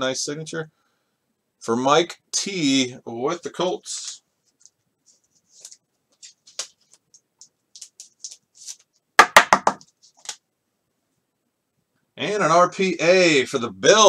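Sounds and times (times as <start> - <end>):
cards clicking and rustling: 5.5 - 8.9, 9.7 - 10.4
loud taps: 9.2 - 9.8.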